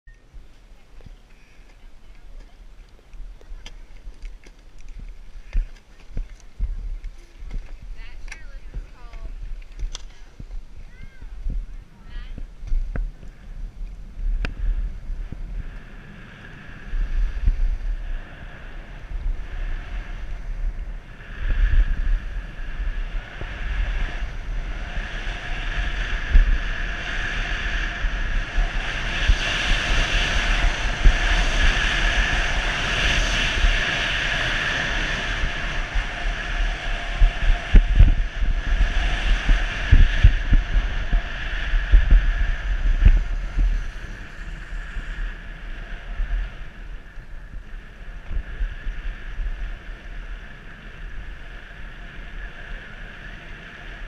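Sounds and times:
wind buffeting microphone: 0.1 - 54.0
low thumps: 4.9 - 15.6, 37.0 - 44.5.

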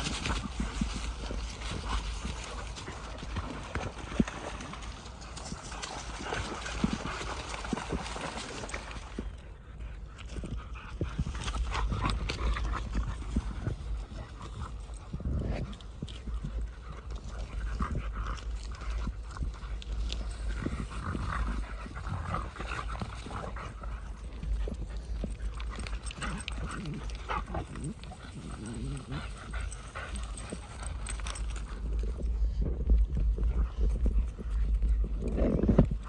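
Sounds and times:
footsteps crunching on stubble: 0.0 - 9.0
wind on microphone: 0.0 - 9.3, 10.4 - 36.0.

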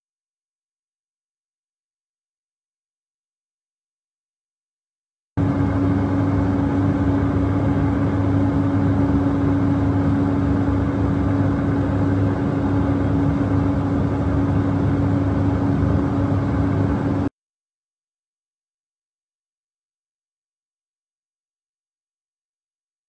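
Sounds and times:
aircraft engine and airflow drone: 5.4 - 17.3
constant hum: 5.4 - 17.3.

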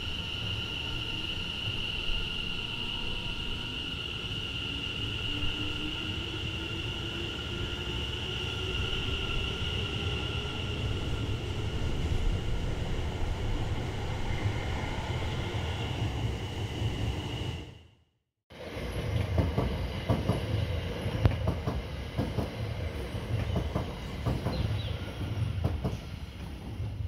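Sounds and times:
train rumbling on rails: 0.0 - 17.8, 18.5 - 27.0
train wheels clacking and rattling: 19.0 - 27.0.

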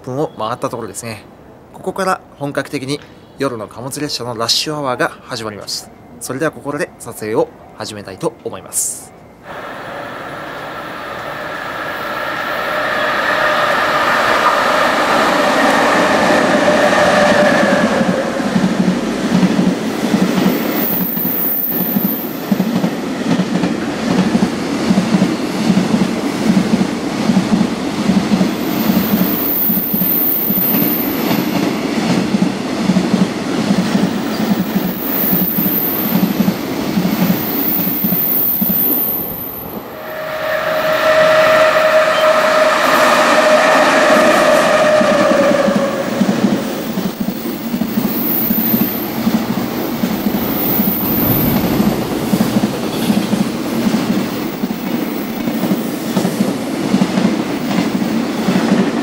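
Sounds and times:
train wheels clacking: 10.8 - 39.1, 40.3 - 59.0.

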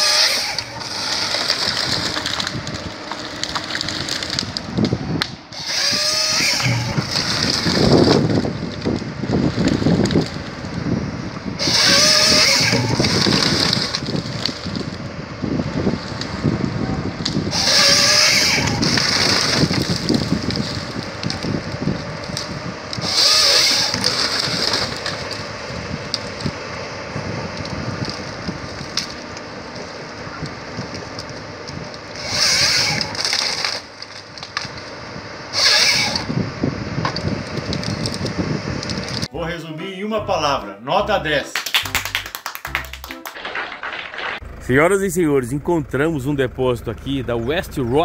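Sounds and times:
branches cracking and splintering: 0.0 - 39.3, 41.6 - 44.6
chainsaw cutting log: 0.0 - 39.3
diesel engine and hydraulics: 0.0 - 39.5, 44.4 - 48.0.

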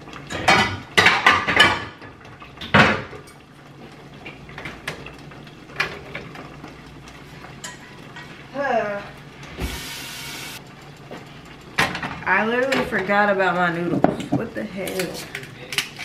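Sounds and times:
pots and utensils clattering: 0.0 - 16.0.

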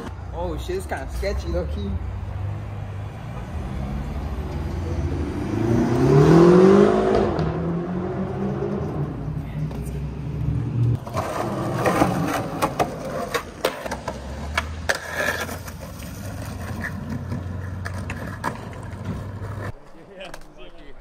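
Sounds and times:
skateboard wheels rumbling: 9.7 - 21.0
skateboard clacks and knocks: 11.0 - 20.6.

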